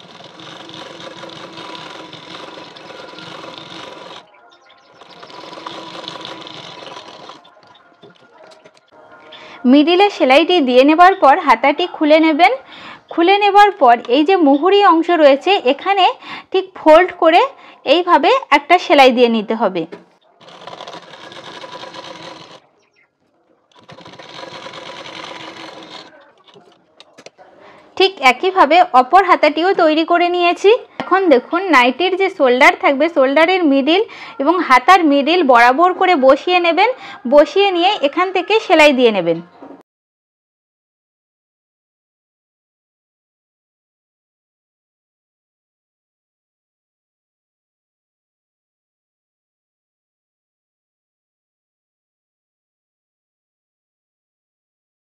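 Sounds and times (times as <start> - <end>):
sewing machine stitching: 0.0 - 7.6, 20.4 - 22.7, 23.7 - 26.8.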